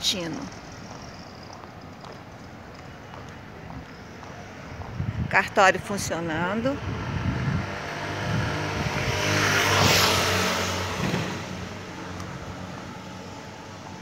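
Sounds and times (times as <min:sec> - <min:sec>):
vehicle driving past: 0:06.6 - 0:13.8.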